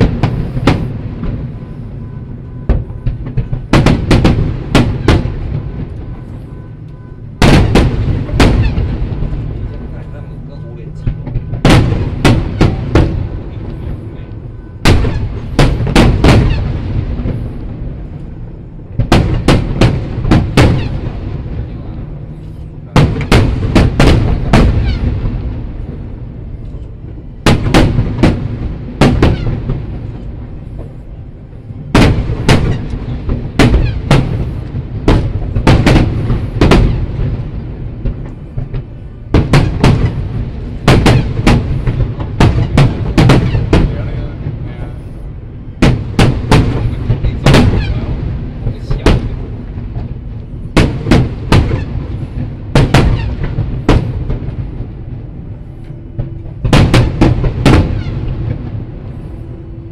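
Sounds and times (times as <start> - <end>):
rolling rumble of echoes: 0.0 - 59.9
firework shells bursting: 7.4 - 9.6, 11.0 - 14.0, 14.8 - 21.5, 22.5 - 25.5, 27.5 - 30.9, 31.9 - 44.1, 45.8 - 54.7, 56.2 - 58.8.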